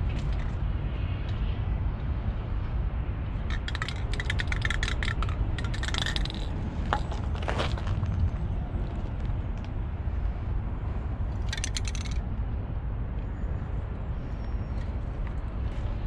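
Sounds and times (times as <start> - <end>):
spray paint can rattling: 3.5 - 7.0, 11.4 - 12.2.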